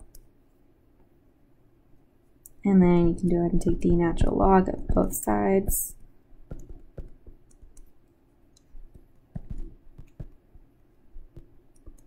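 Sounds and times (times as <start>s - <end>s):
stylus tapping drawing tablet: 6.4s - 7.9s, 8.6s - 12.0s.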